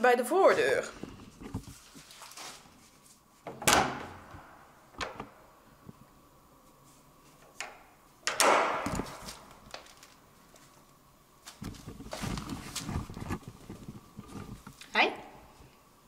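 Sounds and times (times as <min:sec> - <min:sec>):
door clattering: 0:03.5 - 0:04.3, 0:08.2 - 0:09.2
door handle and latch clacking: 0:07.6 - 0:08.9.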